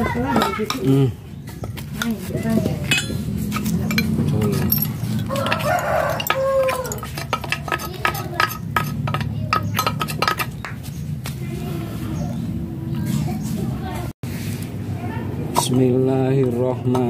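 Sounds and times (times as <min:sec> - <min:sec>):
rooster crowing: 0:05.2 - 0:07.2.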